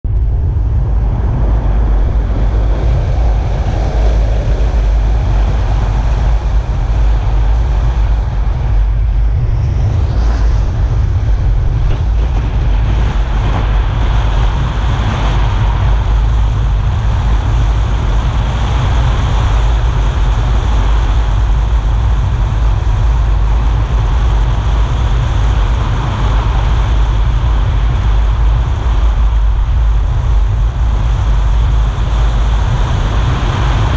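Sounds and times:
tyre and road noise: 0.0 - 33.9
wind rumble on microphone: 0.0 - 33.9.

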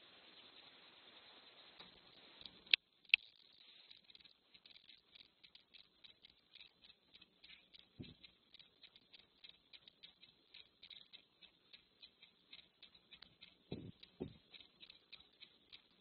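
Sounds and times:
cat sniffing and snuffling: 3.4 - 16.0.

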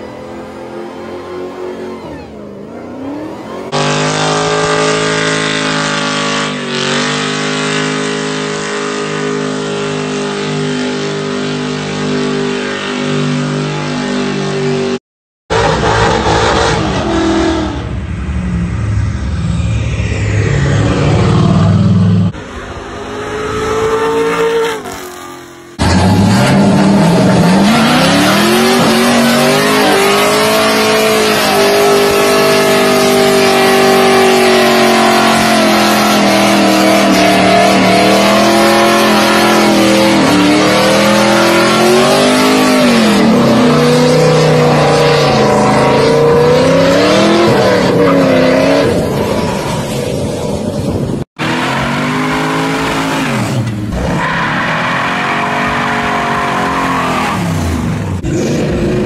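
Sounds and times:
tyres spinning and squealing: 0.0 - 11.0, 23.5 - 50.8, 51.4 - 59.0
car engines revving hard: 0.0 - 18.8, 19.4 - 59.0.

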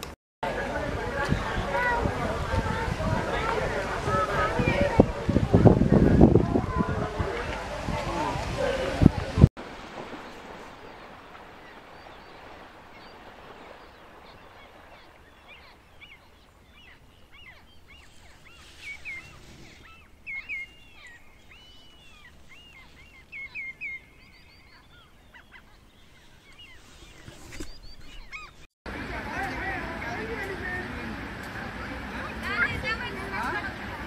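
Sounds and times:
animals splashing in water: 0.0 - 34.0.

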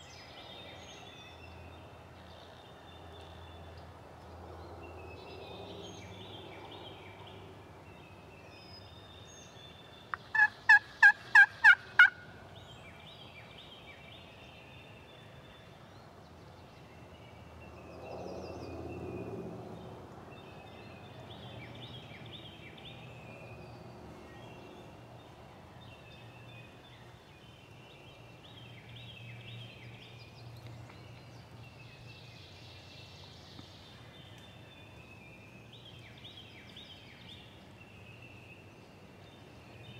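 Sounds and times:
songbirds chirping: 0.0 - 39.9
turkey yelps: 10.3 - 12.2.

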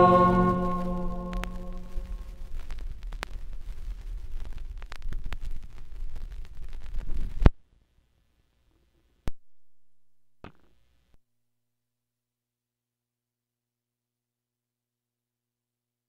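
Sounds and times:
low rumble: 0.0 - 4.8
vinyl record crackle: 0.0 - 11.1.

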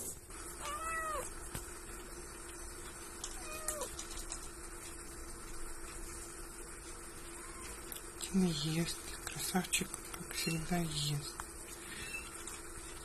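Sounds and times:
kitten mewing: 0.6 - 1.3, 3.4 - 3.9.

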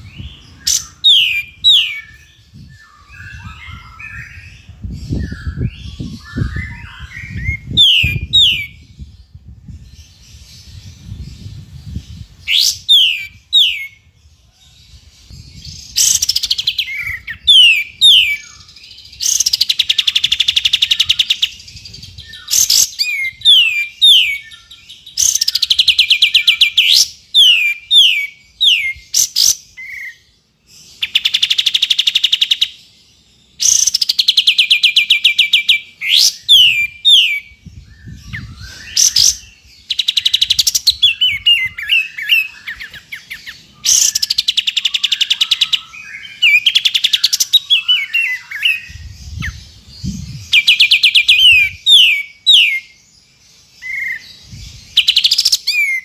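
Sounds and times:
bird trilling: 0.0 - 8.9, 12.4 - 14.0, 15.8 - 32.8, 33.6 - 53.0, 53.8 - 56.0
down-slurred whistled bird notes: 0.0 - 9.0, 33.6 - 53.0.

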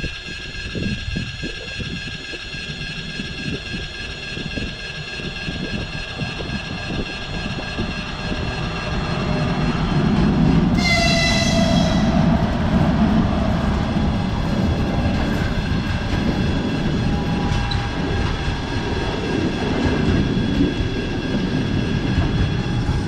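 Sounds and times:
train rumbling past: 0.0 - 23.0
train horn blast: 10.7 - 12.4.

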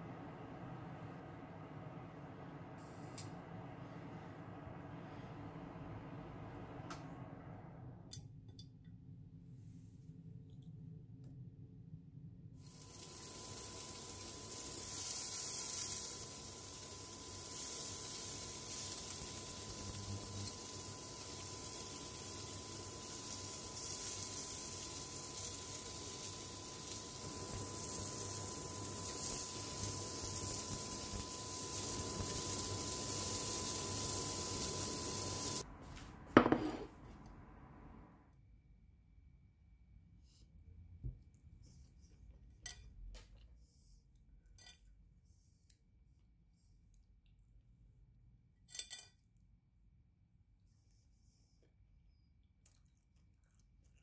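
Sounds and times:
skewers sizzling in a frying pan: 12.6 - 35.6.

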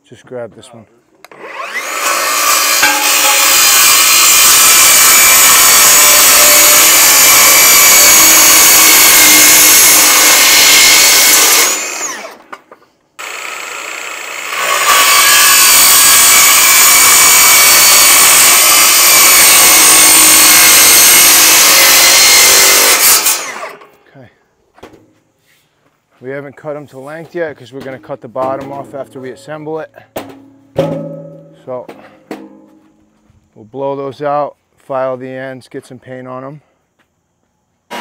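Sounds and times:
circular saw cutting steel: 1.3 - 12.5, 13.2 - 23.9.

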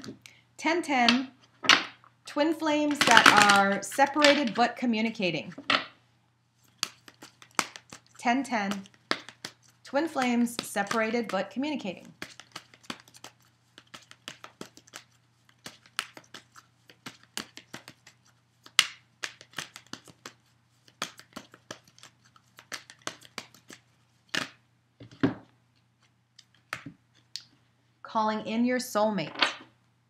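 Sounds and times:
cards being shuffled: 2.7 - 4.6, 6.6 - 25.4, 26.0 - 27.3.

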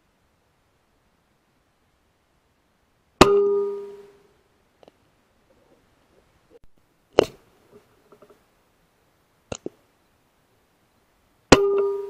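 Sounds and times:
ringing tone: 3.2 - 4.2, 11.5 - 12.0.

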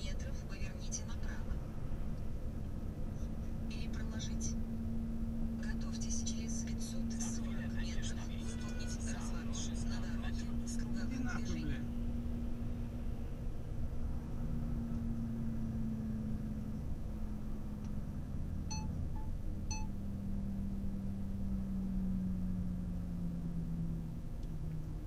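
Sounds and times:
vehicle engine and road hum: 0.0 - 25.0
short beeps: 18.7 - 19.9.

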